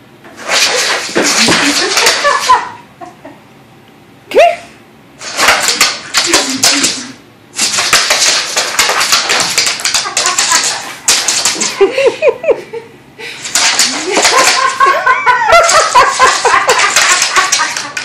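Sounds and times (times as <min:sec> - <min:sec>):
dog claws skittering on wood floor: 0:00.3 - 0:02.7, 0:05.2 - 0:11.9, 0:13.4 - 0:18.0.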